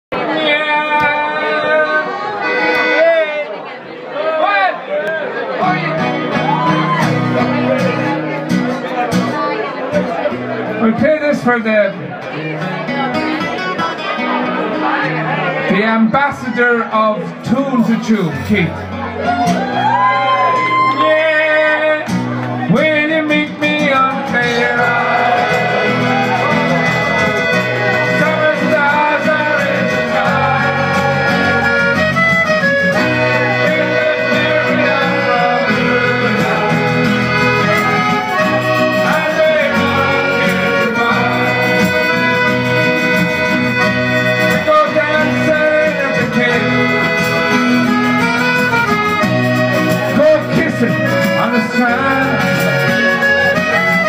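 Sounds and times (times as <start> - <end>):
acoustic and electric guitars: 0.2 - 3.7, 5.2 - 54.0
piano accordion: 1.3 - 3.5, 22.8 - 54.0
steady beat: 24.5 - 43.6.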